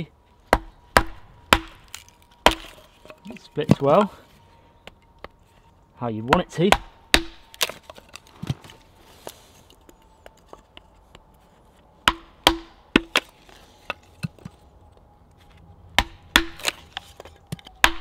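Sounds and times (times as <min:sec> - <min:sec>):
sharp wooden knocks: 0:00.5 - 0:02.8, 0:06.3 - 0:07.5, 0:12.0 - 0:13.3, 0:16.0 - 0:16.8.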